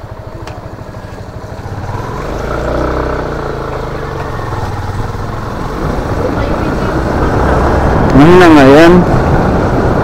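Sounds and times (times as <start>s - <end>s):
small motorcycle engine running: 0.0s - 7.7s
motorcycle passing by: 0.0s - 10.0s.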